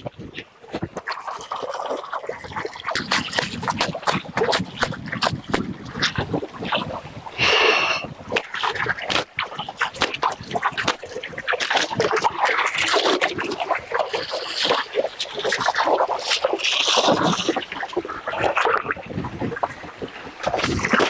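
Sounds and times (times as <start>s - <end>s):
stream water running: 0.0s - 21.0s
wet cloth splashing and slapping: 0.8s - 6.9s, 8.3s - 19.0s.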